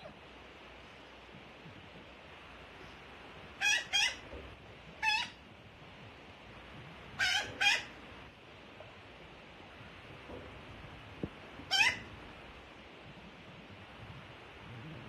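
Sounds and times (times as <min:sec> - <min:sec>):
magpie fledgling harsh calls: 0:03.6 - 0:04.2, 0:11.7 - 0:12.0.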